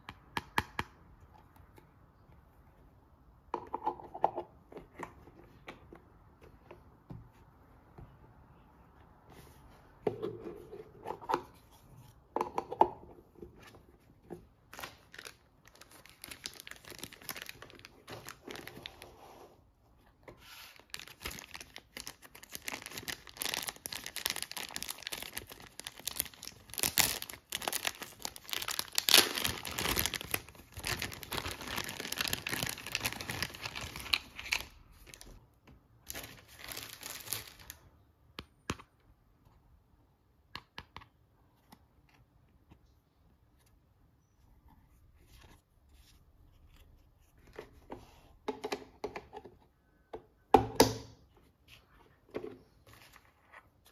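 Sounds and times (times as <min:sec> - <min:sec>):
packaging crinkling and tearing: 0:14.7 - 0:19.0, 0:20.7 - 0:35.4, 0:36.1 - 0:37.8.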